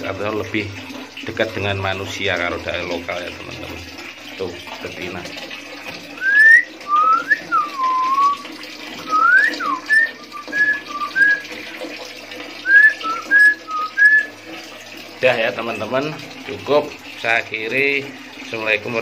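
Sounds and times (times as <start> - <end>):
bird singing whistled notes: 6.2 - 8.4, 9.1 - 11.4.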